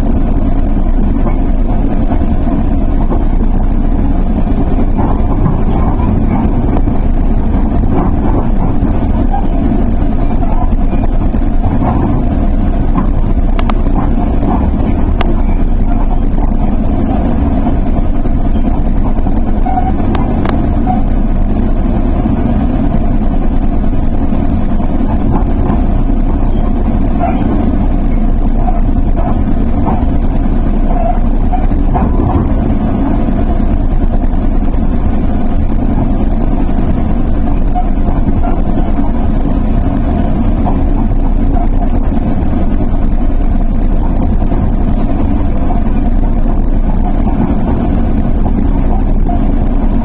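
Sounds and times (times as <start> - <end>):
commuter train rumbling: 0.0 - 50.0.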